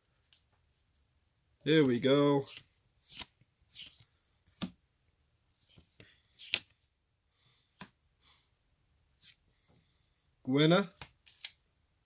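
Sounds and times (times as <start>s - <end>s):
cards clicking and sliding: 1.8s - 4.8s, 5.6s - 6.8s, 11.0s - 11.6s.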